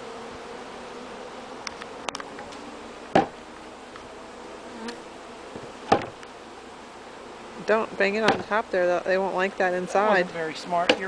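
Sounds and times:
honeybees buzzing: 0.0 - 11.0
wood knocking on hive top: 3.1 - 3.4, 4.8 - 6.3, 8.1 - 8.6, 10.8 - 11.0.

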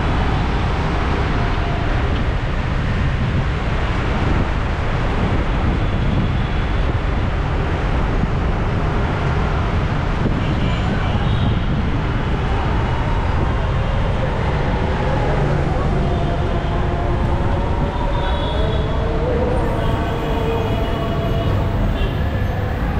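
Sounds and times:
road traffic noise: 0.0 - 22.9.

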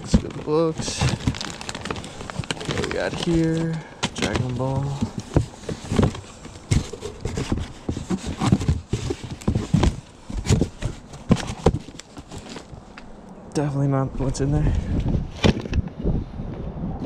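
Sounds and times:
items knocking and clacking in boxes: 0.0 - 12.7.

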